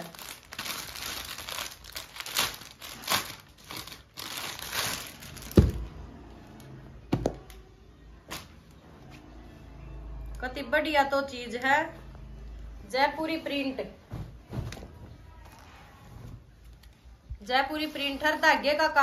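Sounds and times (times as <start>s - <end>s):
plastic bag crinkling: 0.0s - 5.8s.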